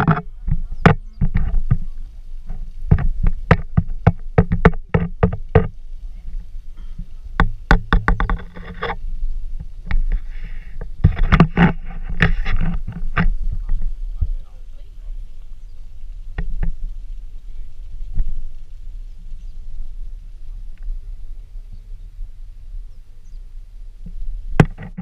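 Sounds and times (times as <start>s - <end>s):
knocks and scrapes on rock: 0.0s - 14.6s, 16.3s - 18.7s, 24.1s - 25.0s
wind rumbling on microphone: 0.0s - 25.0s.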